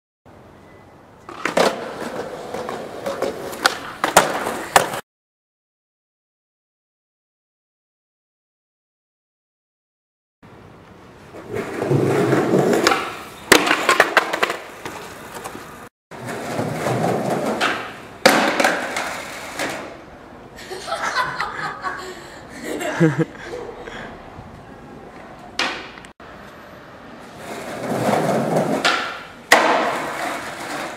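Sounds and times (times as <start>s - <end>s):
skateboard wheels rolling on asphalt: 1.2s - 5.0s, 10.5s - 20.4s, 24.4s - 30.9s
skateboard clattering slams: 1.3s - 5.0s, 11.4s - 15.6s, 16.2s - 20.0s, 25.6s - 26.0s, 27.6s - 30.9s.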